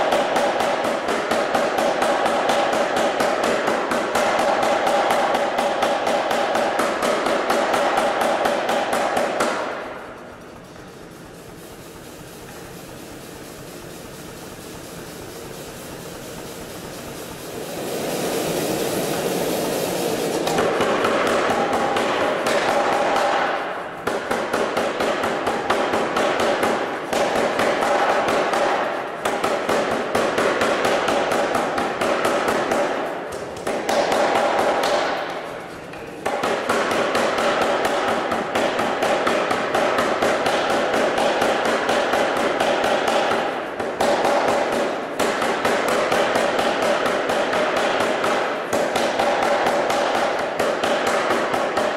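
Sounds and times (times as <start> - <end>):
power hammer striking hot steel: 0.0 - 10.1, 11.6 - 51.9.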